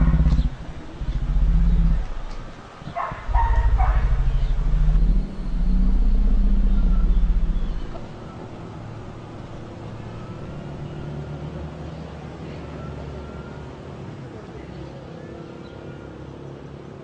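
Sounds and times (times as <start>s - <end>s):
motor vehicle engine rumble: 0.0s - 12.0s
dog barking: 2.9s - 4.5s.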